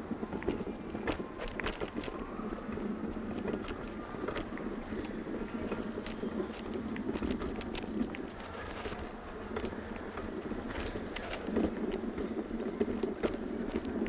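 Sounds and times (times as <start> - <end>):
crowd hubbub: 0.0 - 14.0
suitcase wheels rolling on tiles: 0.0 - 14.0
sharp clicks and knocks: 0.4 - 2.2, 3.3 - 9.0, 12.8 - 14.0.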